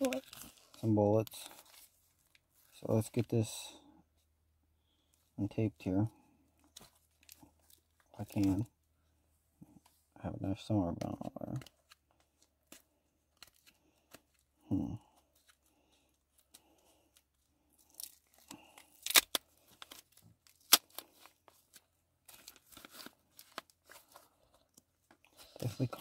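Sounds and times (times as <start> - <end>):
plastic tape crinkling and tearing: 0.0 - 2.4, 17.8 - 24.8.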